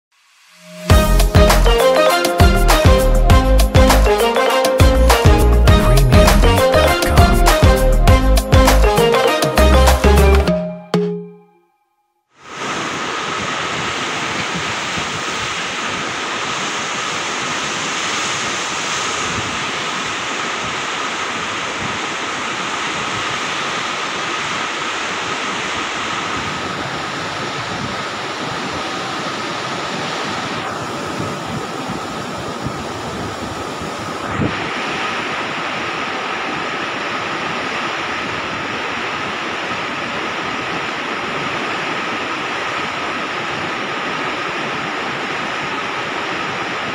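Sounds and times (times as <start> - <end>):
wind on microphone: 12.4 - 46.9.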